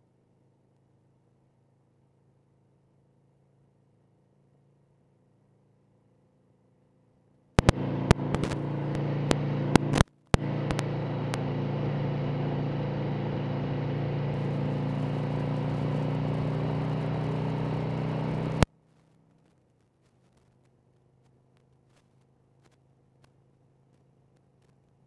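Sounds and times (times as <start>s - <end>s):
motorcycle engine cruising: 7.6s - 19.3s
wind and road noise: 7.6s - 19.7s.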